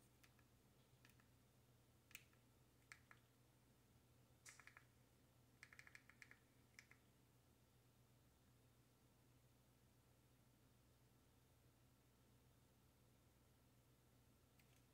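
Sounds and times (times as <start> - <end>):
remote control clicks: 4.4 - 4.9, 5.6 - 7.0.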